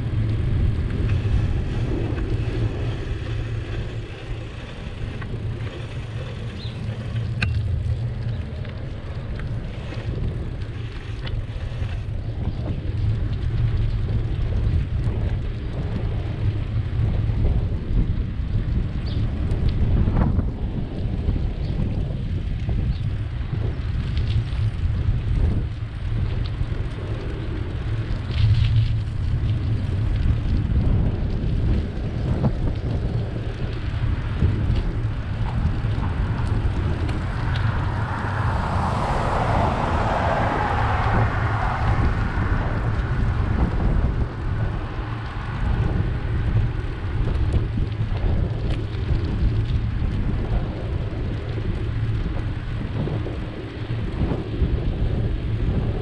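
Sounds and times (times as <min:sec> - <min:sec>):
road rumble from bicycle: 0:00.0 - 0:56.0
wind buffeting microphone: 0:00.0 - 0:56.0
car passing: 0:33.8 - 0:49.7.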